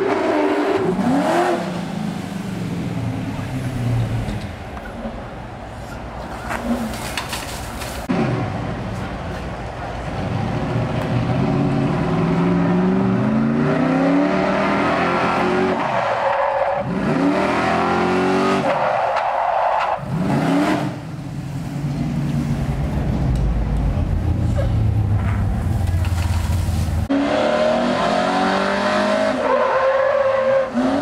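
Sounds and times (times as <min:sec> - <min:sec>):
truck engine revving hard: 0:00.0 - 0:02.1, 0:11.4 - 0:18.8, 0:27.1 - 0:31.0
tires squealing and skidding: 0:14.2 - 0:21.0, 0:27.1 - 0:31.0.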